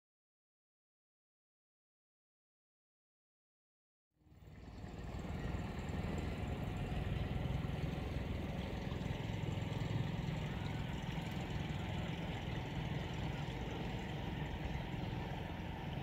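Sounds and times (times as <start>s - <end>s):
outboard motor running: 4.2s - 16.0s.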